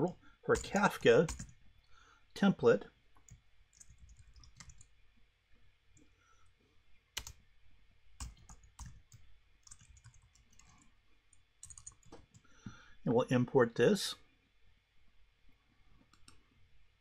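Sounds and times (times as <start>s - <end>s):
keyboard keys typing: 0.0s - 1.6s, 3.2s - 4.9s, 7.2s - 7.4s, 8.2s - 10.8s, 11.6s - 12.4s.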